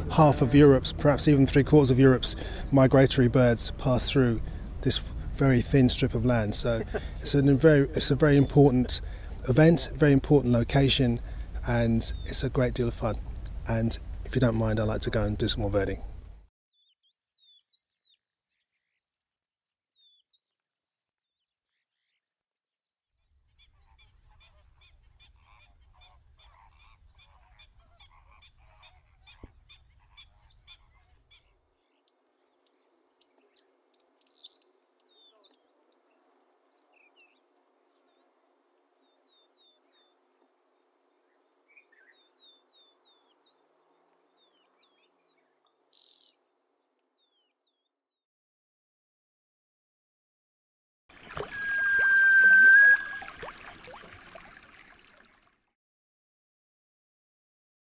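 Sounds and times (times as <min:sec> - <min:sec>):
low rumbling noise: 0:00.0 - 0:10.0
birds chirping: 0:00.0 - 0:16.0, 0:23.6 - 0:47.9, 0:51.2 - 0:54.9
fast run of high notes: 0:51.4 - 0:53.5.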